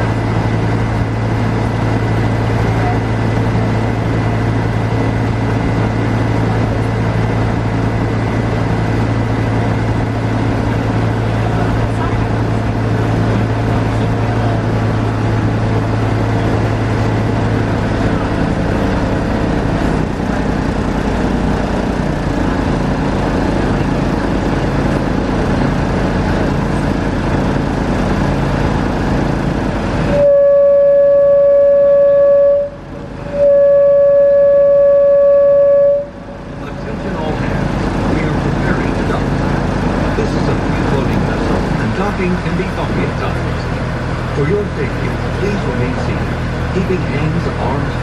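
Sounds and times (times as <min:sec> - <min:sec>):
boat engine running: 0:00.0 - 0:48.0
boat horn blasts: 0:30.0 - 0:36.8.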